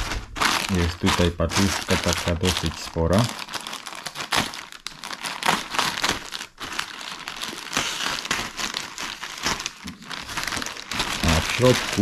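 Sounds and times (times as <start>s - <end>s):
scissors cutting plastic: 0.0s - 3.3s, 7.4s - 12.0s
plastic mailer bag crinkling: 0.0s - 12.0s.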